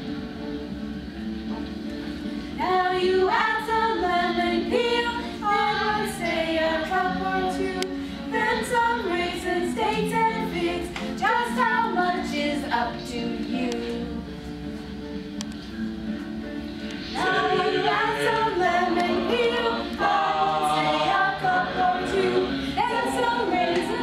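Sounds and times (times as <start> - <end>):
group singing: 2.6 - 11.7, 17.1 - 24.0.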